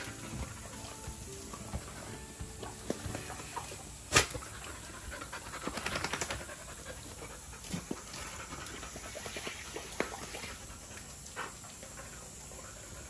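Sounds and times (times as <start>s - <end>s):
dog panting: 4.4s - 9.4s, 10.5s - 13.0s.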